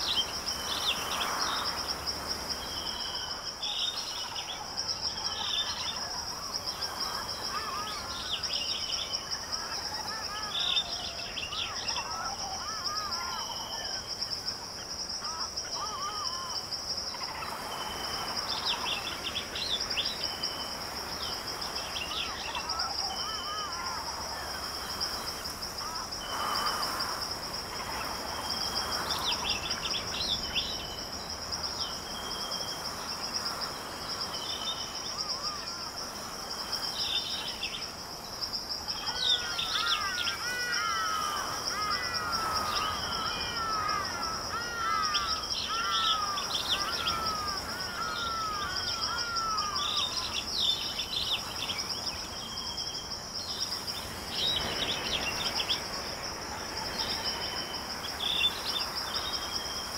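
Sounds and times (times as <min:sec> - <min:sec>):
high-pitched insect trill: 0:00.0 - 0:59.9
birds calling: 0:38.8 - 0:52.1.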